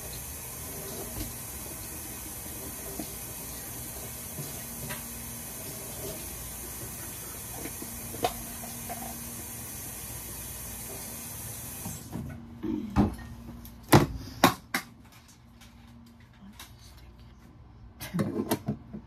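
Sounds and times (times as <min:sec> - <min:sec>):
kitchen tap running: 0:00.0 - 0:12.1.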